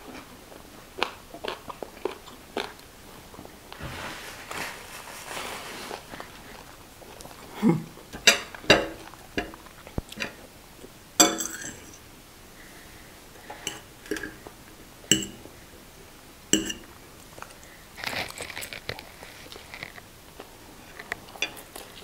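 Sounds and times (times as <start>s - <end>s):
forks clinking on plates: 8.2s - 9.6s, 11.2s - 12.0s, 13.6s - 14.4s, 15.1s - 15.4s, 16.6s - 16.9s, 21.3s - 21.8s.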